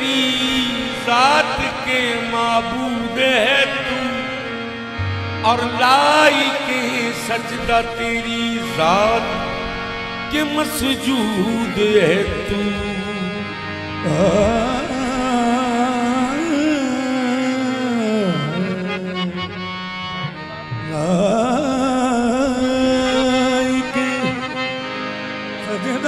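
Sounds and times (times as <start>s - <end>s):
harmonium drone: 0.0s - 26.0s
person singing long vowels: 14.0s - 19.6s.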